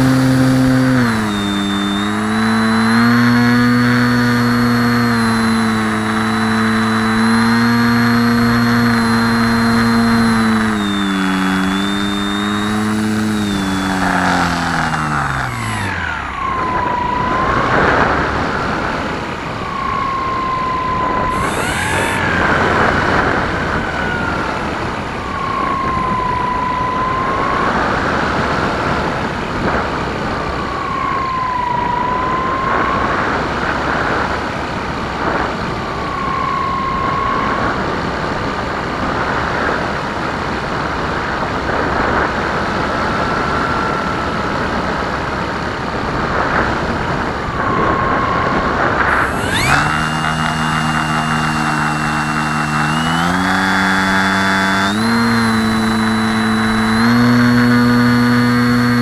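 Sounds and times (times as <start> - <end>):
electric motor and propeller hum: 0.0 - 59.0
thin whine: 0.0 - 59.0
wind rushing over camera: 0.0 - 59.0.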